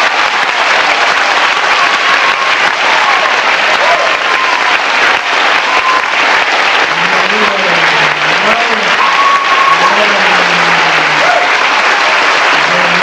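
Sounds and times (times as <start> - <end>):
audience applauding: 0.0 - 13.0
person's voice: 6.9 - 11.5, 12.6 - 13.0.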